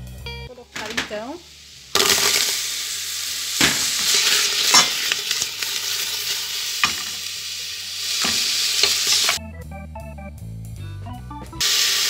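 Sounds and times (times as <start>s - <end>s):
onions sizzling in hot sugar: 0.5s - 9.4s, 11.6s - 12.0s.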